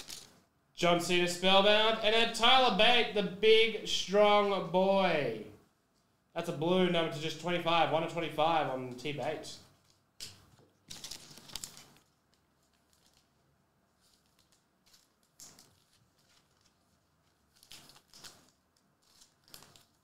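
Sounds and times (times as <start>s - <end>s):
trading cards rustling: 0.0s - 0.3s, 10.8s - 20.0s.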